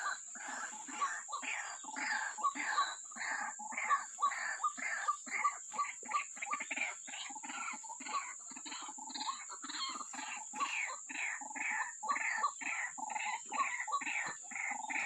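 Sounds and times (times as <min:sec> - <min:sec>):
bird harsh croaking calls: 0:00.0 - 0:15.0.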